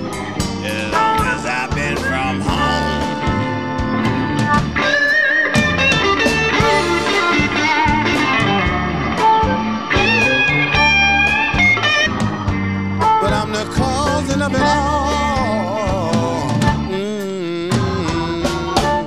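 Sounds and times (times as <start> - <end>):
bass and drums: 0.0 - 19.0
electric guitar bent notes: 0.0 - 19.0.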